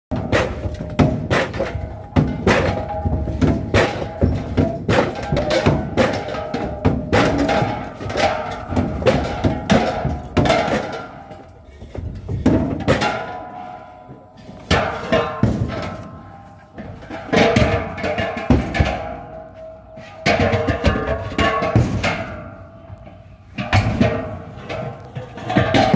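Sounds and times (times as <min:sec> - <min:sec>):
gas cylinders clanking on metal: 0:00.1 - 0:25.9.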